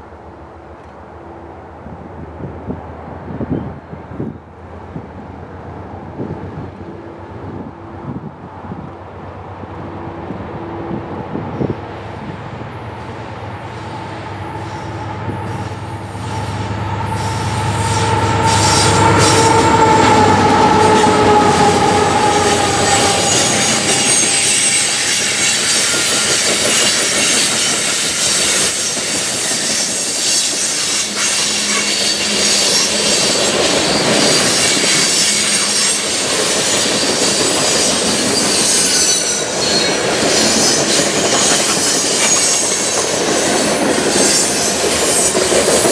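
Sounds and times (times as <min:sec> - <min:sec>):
diesel locomotives passing: 0:00.0 - 0:45.9
wheels squealing against rail: 0:11.6 - 0:45.9.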